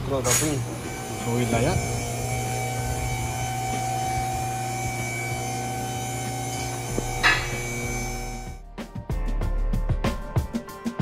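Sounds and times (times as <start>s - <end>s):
electric pump motor humming: 0.0s - 8.6s.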